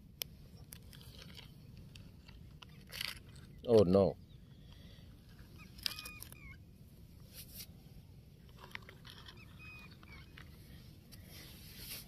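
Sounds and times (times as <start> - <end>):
faint high animal calls: 5.4 - 6.6, 9.2 - 10.8.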